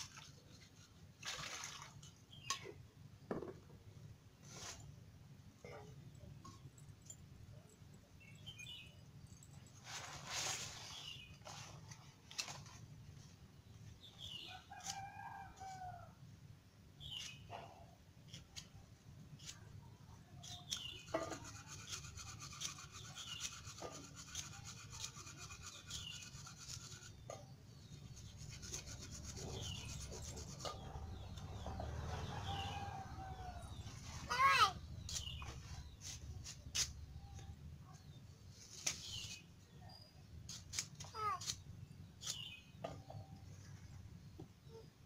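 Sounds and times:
bird chirping: 7.0s - 9.6s
rooster crowing: 32.2s - 33.8s.

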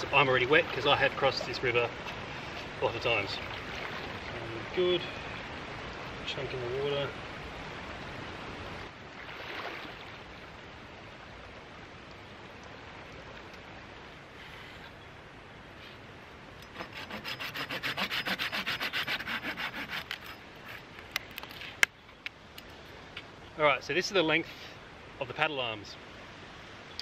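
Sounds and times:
hand saw cutting wood: 16.6s - 20.9s.

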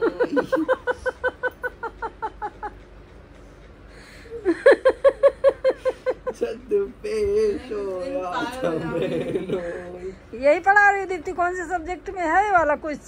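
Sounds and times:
person laughing: 0.0s - 2.8s, 4.3s - 6.6s.

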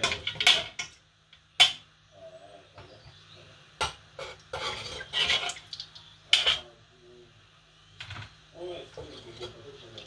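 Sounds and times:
spoon scraping pot: 4.2s - 5.6s, 8.9s - 9.9s.

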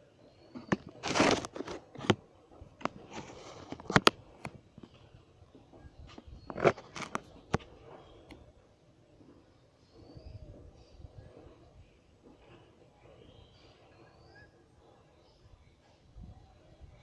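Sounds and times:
short rustles: 0.5s - 5.0s.

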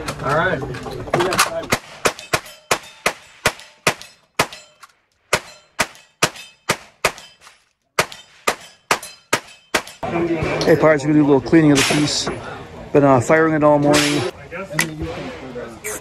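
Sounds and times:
hand-cranked gun firing shots: 1.7s - 10.0s.

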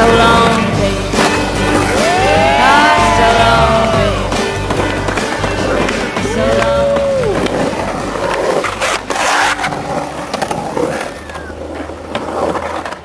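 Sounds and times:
skateboard clacks: 0.0s - 13.0s
skateboard wheels rolling on concrete: 0.0s - 13.0s
person calling out: 2.2s - 4.2s.

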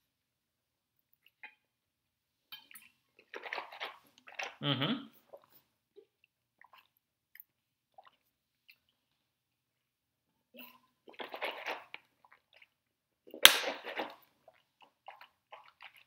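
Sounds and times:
mouth noises: 4.4s - 5.2s.

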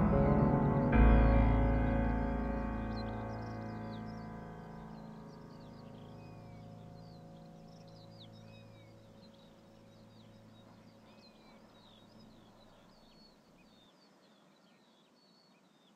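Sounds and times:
low hum: 0.0s - 8.8s
small birds chirping: 0.0s - 15.9s.

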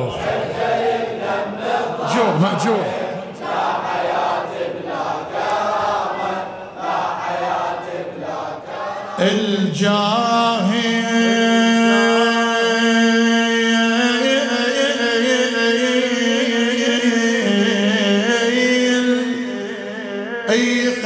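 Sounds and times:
congregation chanting: 0.0s - 21.0s.

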